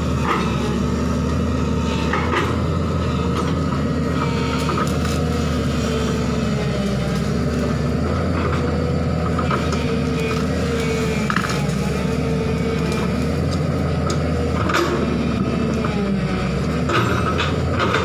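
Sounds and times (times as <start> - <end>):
excavator diesel engine running: 0.0 - 18.0
branches cracking: 4.4 - 7.9.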